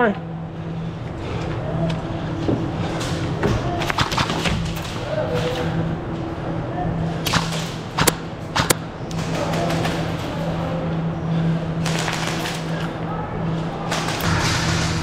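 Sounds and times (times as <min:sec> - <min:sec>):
steady low hum: 0:00.0 - 0:15.0
airsoft rifle shots: 0:07.2 - 0:10.0.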